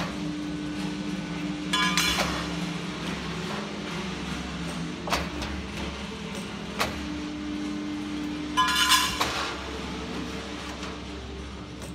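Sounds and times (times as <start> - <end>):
hydraulic unit hum: 0.0 - 11.9
ringing metallic clang: 8.6 - 9.4.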